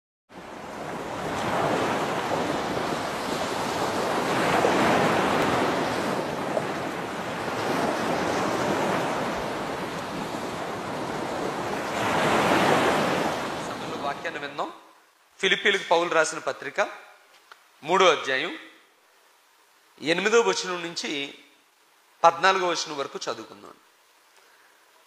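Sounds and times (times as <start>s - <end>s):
ocean waves washing: 0.3s - 14.8s.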